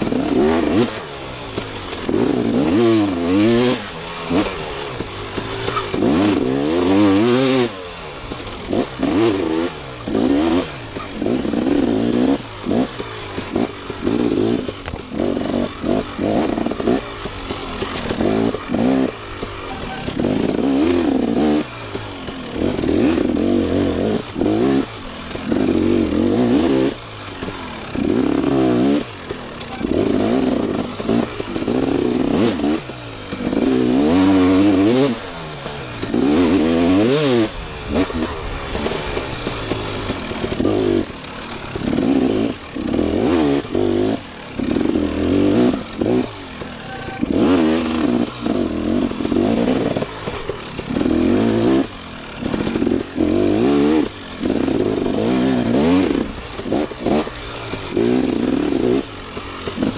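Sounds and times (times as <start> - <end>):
dirt bike engine revving: 0.0 - 59.9.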